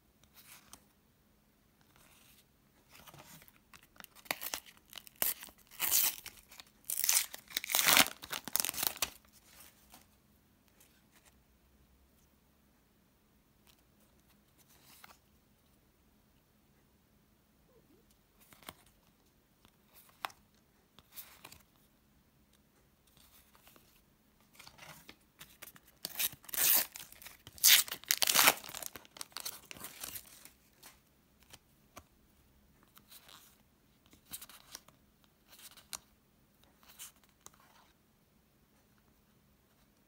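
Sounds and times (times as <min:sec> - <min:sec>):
sticker packet ripping: 0:26.0 - 0:30.1.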